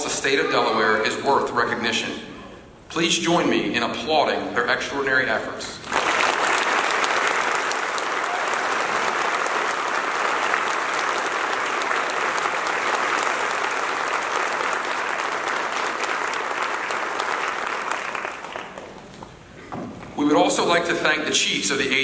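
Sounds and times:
large audience applauding: 0:05.8 - 0:19.2.

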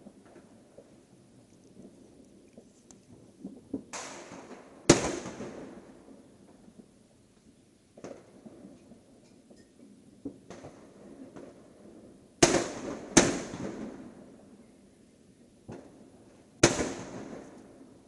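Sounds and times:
firecracker pops: 0:03.4 - 0:05.8, 0:08.0 - 0:09.6, 0:10.2 - 0:11.6, 0:12.4 - 0:14.0, 0:15.7 - 0:16.0, 0:16.6 - 0:17.7
fireworks bangs with echo: 0:03.4 - 0:06.9, 0:08.0 - 0:09.1, 0:10.2 - 0:14.4, 0:15.7 - 0:18.0.

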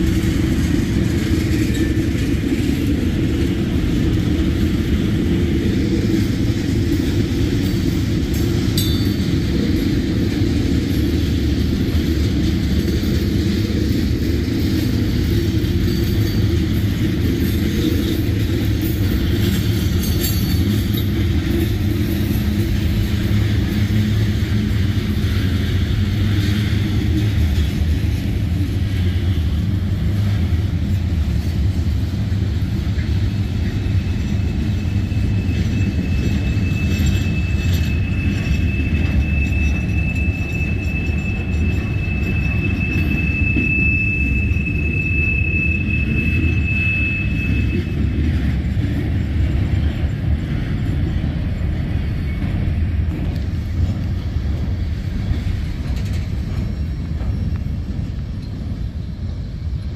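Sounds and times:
freight cars rumbling on rails: 0:00.0 - 0:59.9
high wheel squeal: 0:13.1 - 0:59.8.

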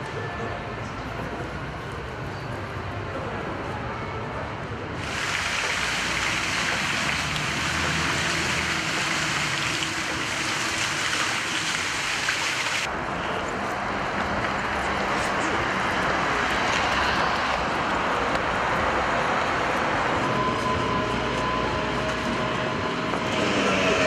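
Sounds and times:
water hissing: 0:05.0 - 0:12.9.

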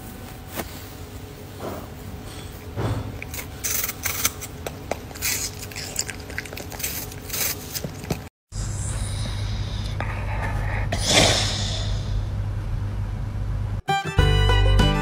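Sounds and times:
dog crunching food: 0:03.1 - 0:08.3.

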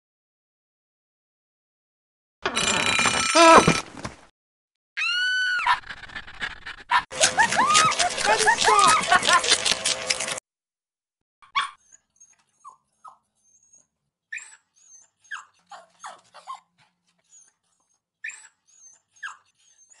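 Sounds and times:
dog whining and yipping: 0:11.5 - 0:20.0.

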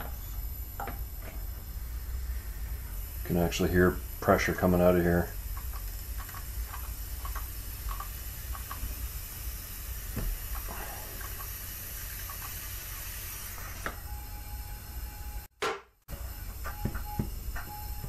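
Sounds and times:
compressed air hissing: 0:00.0 - 0:14.1.

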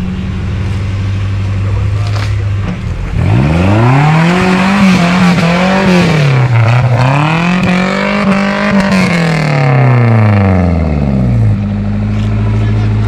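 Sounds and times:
engine revving hard: 0:03.1 - 0:11.6.

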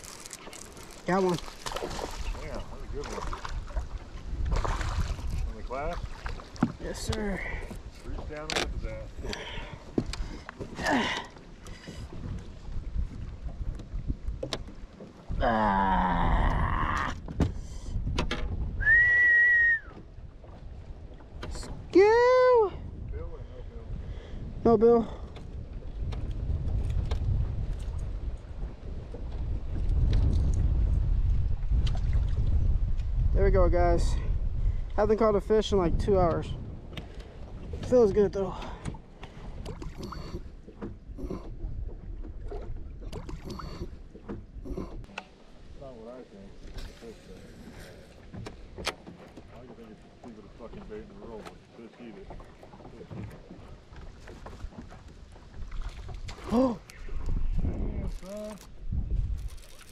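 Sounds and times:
knocks and clicks in aluminium boat: 0:00.0 - 0:15.4, 0:16.3 - 0:18.8, 0:19.8 - 0:22.2, 0:22.9 - 0:59.9
person whistling high note: 0:18.8 - 0:19.9.

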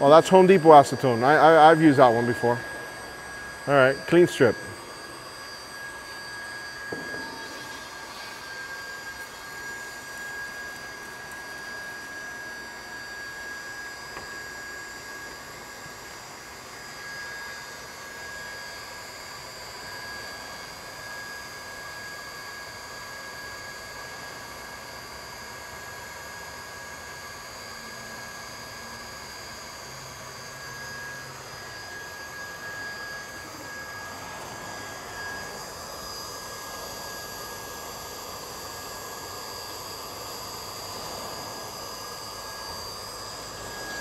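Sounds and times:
machinery drone: 0:00.0 - 0:14.3, 0:31.1 - 0:44.0
high whine: 0:00.0 - 0:21.6, 0:27.7 - 0:44.0.

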